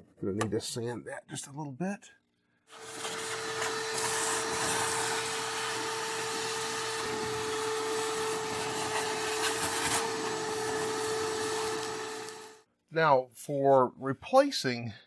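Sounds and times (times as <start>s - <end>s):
vacuum cleaner whining: 2.7s - 12.6s.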